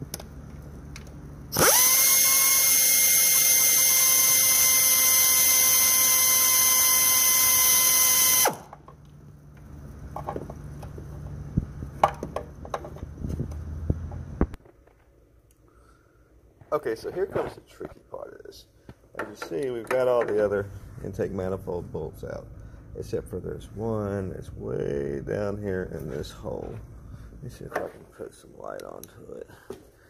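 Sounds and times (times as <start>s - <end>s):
power drill whining: 1.5s - 8.7s.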